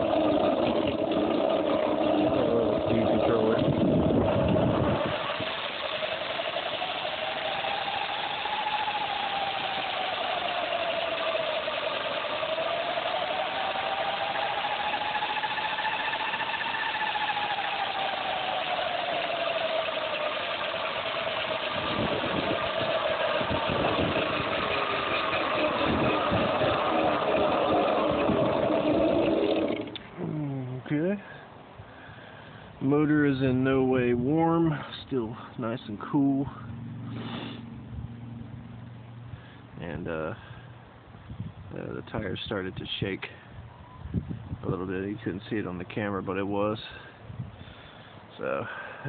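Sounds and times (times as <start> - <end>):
electric motor whining: 0.0 - 30.1.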